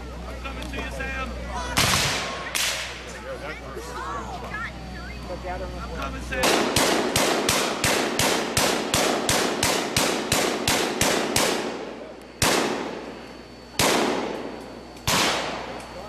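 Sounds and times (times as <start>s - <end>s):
gatling gun firing blanks: 6.4s - 11.8s, 12.4s - 13.0s, 13.8s - 15.7s.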